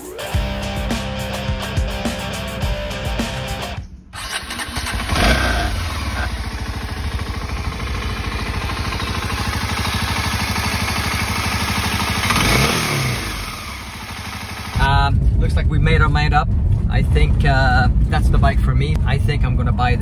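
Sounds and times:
motorcycle engine starting and idling: 4.1 - 15.0.

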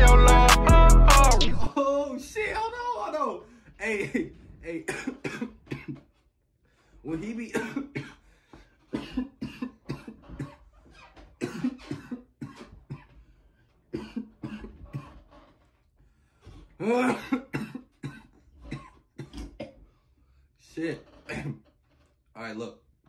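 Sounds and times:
man coughing: 3.8 - 6.1, 7.4 - 8.2, 8.9 - 10.6, 11.4 - 13.1, 14.0 - 15.2, 16.8 - 19.8, 21.2 - 21.7.

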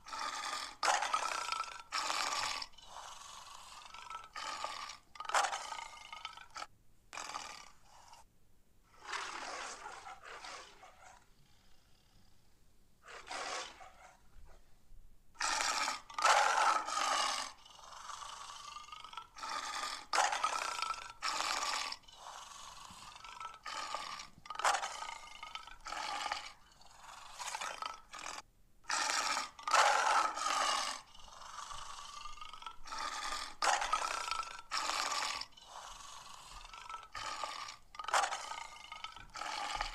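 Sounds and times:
lion roaring and growling: 15.4 - 28.4, 29.0 - 39.9.

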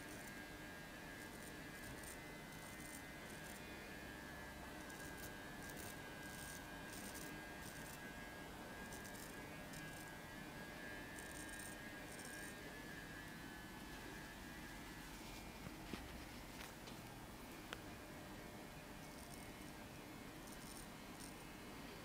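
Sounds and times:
razor scraping stubble: 0.0 - 3.8, 4.8 - 8.2, 8.8 - 10.3, 11.1 - 12.6
faint steady hum: 0.0 - 22.0.

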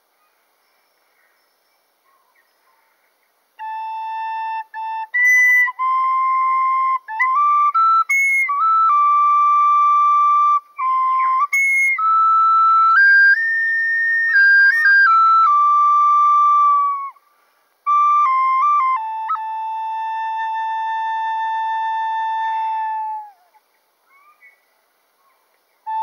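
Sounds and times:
flute playing slow melody: 3.6 - 23.6.

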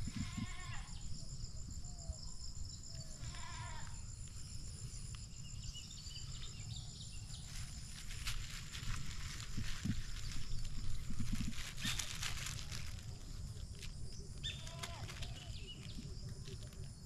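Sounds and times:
high-pitched insect drone: 0.0 - 17.0
crackling rustle: 7.2 - 17.0.

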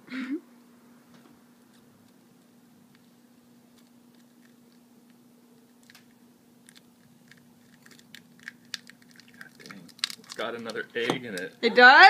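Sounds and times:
eggshell cracking: 3.6 - 11.6.

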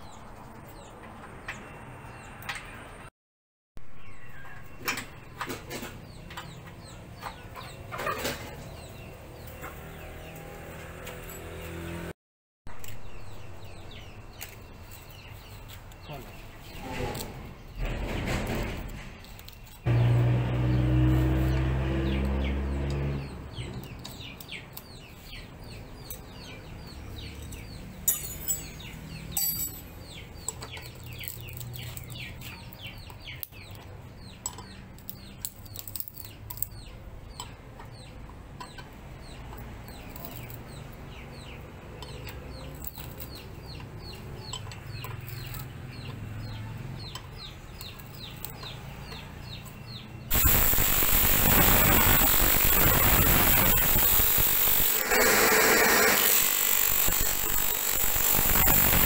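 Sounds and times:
small birds chirping: 4.0 - 10.6, 12.7 - 20.1, 20.7 - 59.0
disc sander running: 19.9 - 22.3, 50.3 - 59.0
sharp clinks: 27.4 - 31.7.

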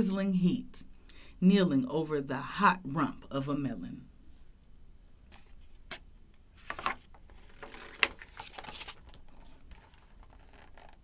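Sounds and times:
paper rustling: 6.6 - 11.0.

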